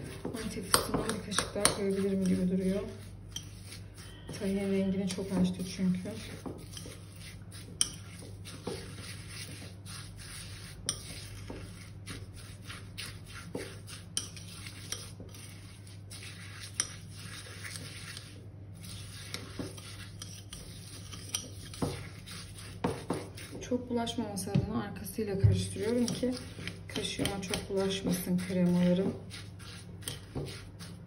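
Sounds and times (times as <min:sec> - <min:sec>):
fork stirring thick paste: 0:00.0 - 0:31.0.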